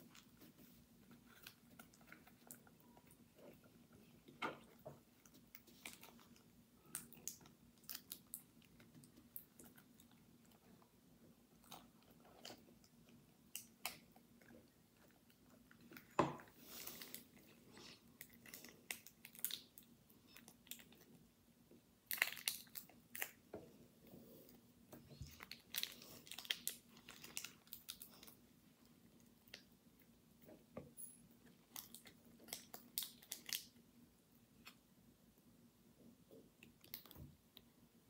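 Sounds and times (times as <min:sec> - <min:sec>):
plastic wrapping crackling: 0:25.2 - 0:28.4.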